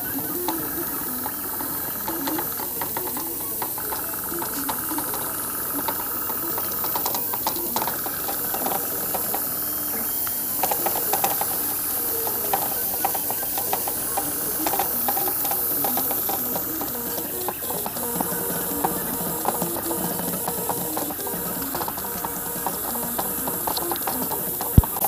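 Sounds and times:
airbrush hissing: 0:00.0 - 0:25.0
small ticks: 0:00.0 - 0:25.0
stepper motors whining: 0:00.0 - 0:25.0.

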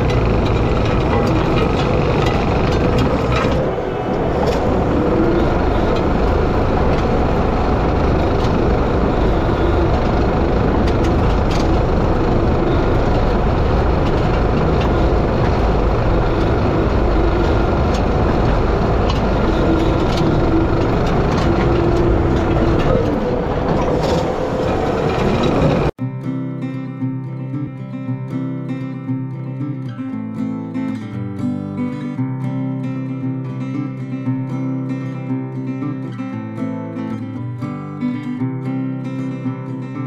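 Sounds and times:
power rake churning dry soil: 0:00.0 - 0:25.9
skid steer engine running: 0:00.0 - 0:26.0.

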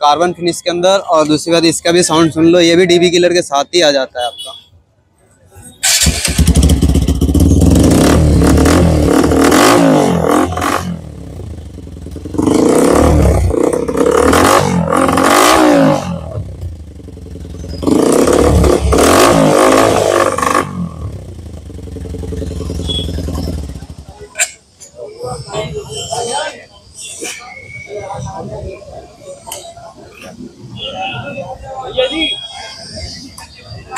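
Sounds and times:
motorcycle engine revving: 0:05.8 - 0:24.3.

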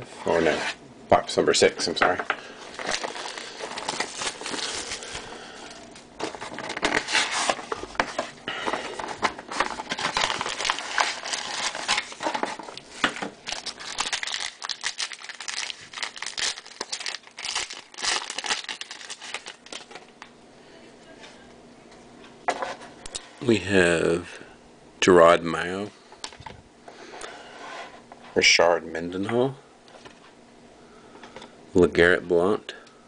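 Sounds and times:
plastic wrapper tearing and crinkling: 0:02.7 - 0:05.2, 0:06.2 - 0:08.2, 0:09.2 - 0:12.8, 0:13.4 - 0:20.3.

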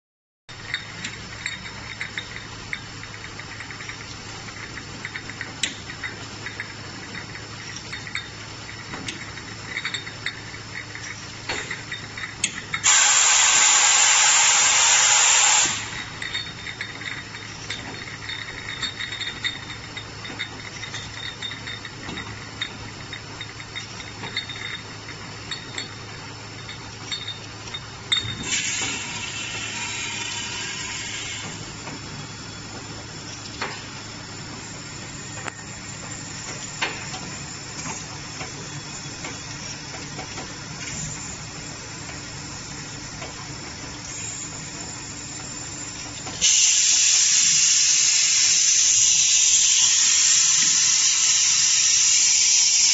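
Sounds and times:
glass bottles clinking and knocking: 0:00.5 - 0:13.0, 0:15.6 - 0:30.3, 0:31.4 - 0:46.4
bottle filling machine hum: 0:00.5 - 0:52.9
loud hiss: 0:12.8 - 0:16.3, 0:46.4 - 0:52.9.

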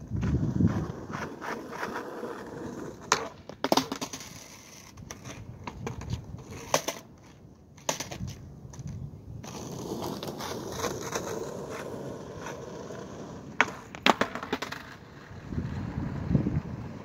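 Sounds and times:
skateboard clattering on pavement: 0:00.0 - 0:17.0
skateboard wheels rolling: 0:00.0 - 0:17.0
skateboard tail pop: 0:13.6 - 0:15.0.

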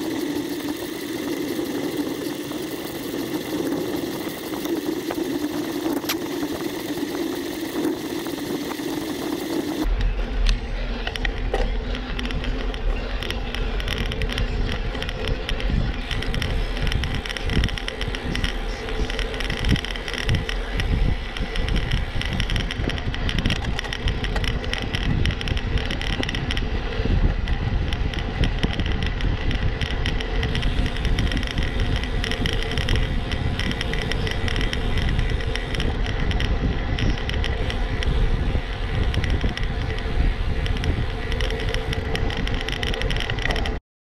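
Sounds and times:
bicycle tyre noise: 0:00.0 - 0:43.8
wind rushing over microphone: 0:00.0 - 0:43.8.

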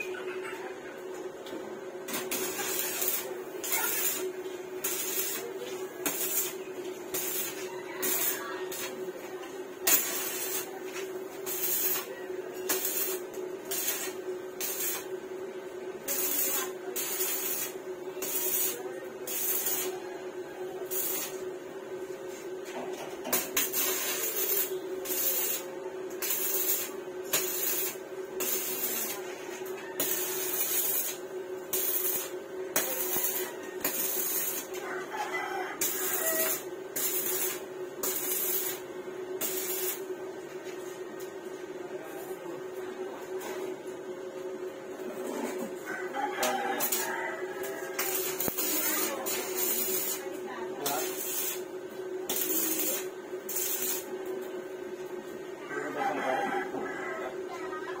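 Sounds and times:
welding arc crackling and hissing: 0:02.0 - 0:20.0, 0:20.8 - 0:22.1, 0:23.3 - 0:34.8, 0:35.8 - 0:40.1, 0:46.8 - 0:54.4.

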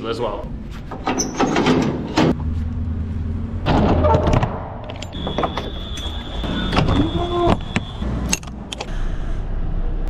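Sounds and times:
metallic clunks and knocks: 0:00.9 - 0:02.4, 0:03.6 - 0:08.5.

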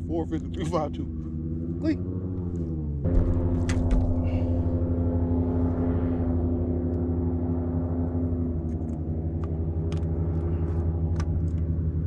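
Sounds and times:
outboard boat engine droning: 0:00.0 - 0:12.0.

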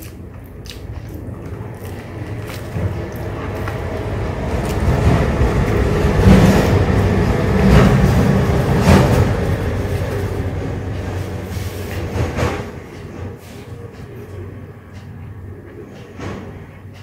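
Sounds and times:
chewing sandwich: 0:00.0 - 0:05.8.

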